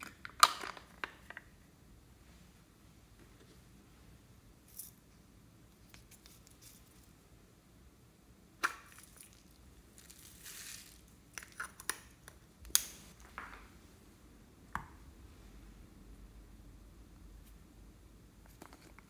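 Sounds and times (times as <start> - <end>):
crackling rustle of slime: 8.8 - 12.2.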